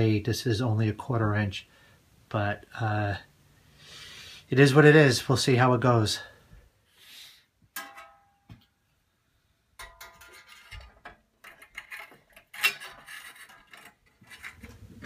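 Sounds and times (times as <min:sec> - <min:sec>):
steel blade clinking and rattling: 0:07.8 - 0:08.3, 0:09.8 - 0:14.7.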